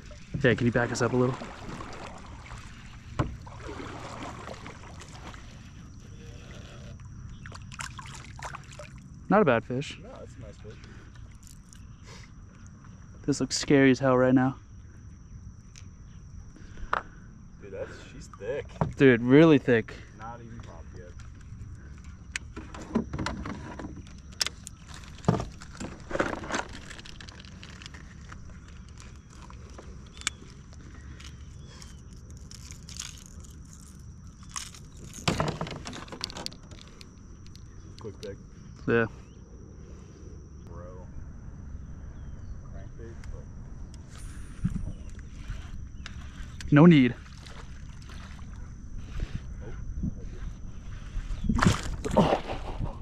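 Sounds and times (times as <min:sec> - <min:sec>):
paddle washing water: 0:00.0 - 0:06.1
faint steady background: 0:00.0 - 0:53.0
fishing tackle clicks and rattles: 0:24.0 - 0:38.3.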